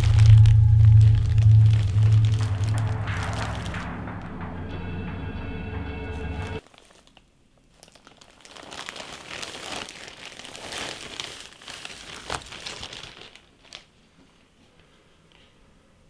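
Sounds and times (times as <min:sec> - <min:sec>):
plastic bag crinkling: 0:06.6 - 0:14.1.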